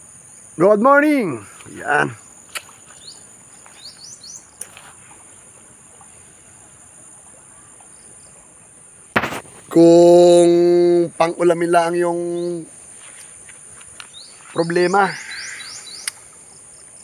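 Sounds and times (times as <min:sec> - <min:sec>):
insects trilling: 0:00.0 - 0:17.0
bird chirps: 0:02.0 - 0:04.8, 0:12.3 - 0:17.0
sharp knock: 0:09.1 - 0:09.6.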